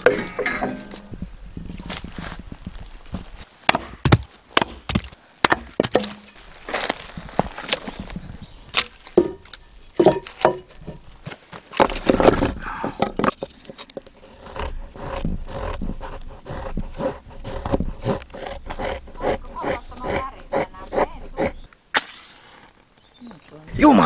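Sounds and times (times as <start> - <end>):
wood splitting knocks and cracks: 2.8 - 15.3
wood splintering: 11.7 - 22.1.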